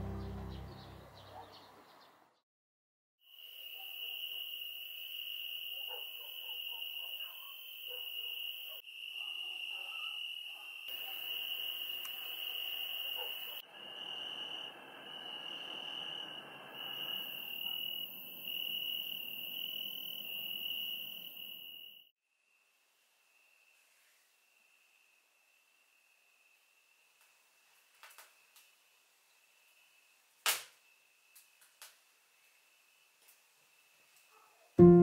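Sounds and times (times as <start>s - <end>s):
crickets trilling: 3.3s - 34.3s
faint outdoor hiss: 22.4s - 35.0s.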